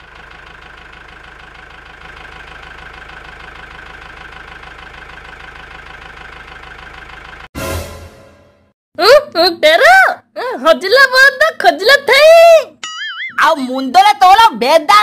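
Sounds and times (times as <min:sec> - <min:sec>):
tractor engine running: 0:00.0 - 0:07.5.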